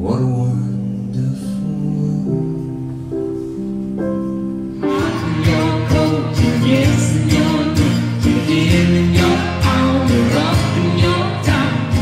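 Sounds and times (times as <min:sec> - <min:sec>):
instrumental accompaniment with beat: 0:02.5 - 0:12.0
man and woman singing together: 0:04.8 - 0:12.0.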